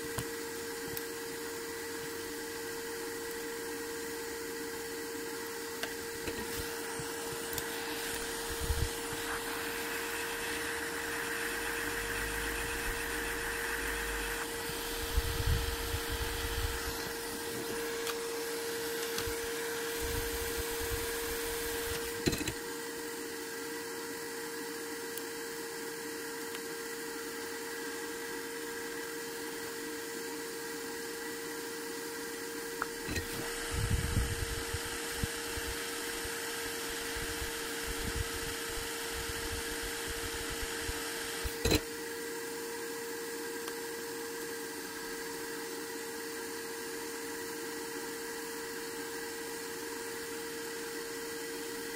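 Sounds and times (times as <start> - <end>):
small fan humming: 0.0 - 51.9
held tone: 6.3 - 18.5.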